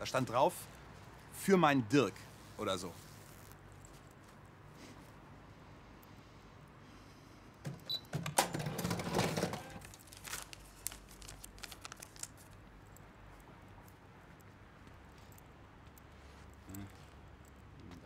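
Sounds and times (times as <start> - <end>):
paper banknotes rustling: 8.5 - 12.6
light clicks and taps: 12.5 - 18.0.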